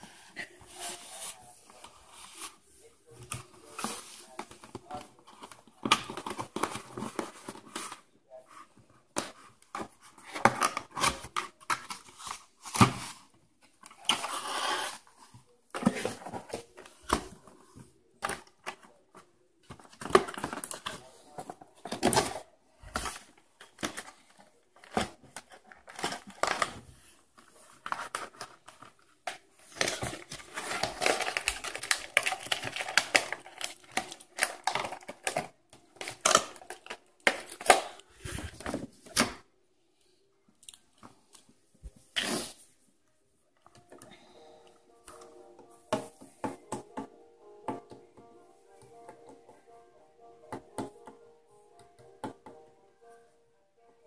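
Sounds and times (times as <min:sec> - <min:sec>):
cardboard scraping and crinkling: 0:13.9 - 0:17.5.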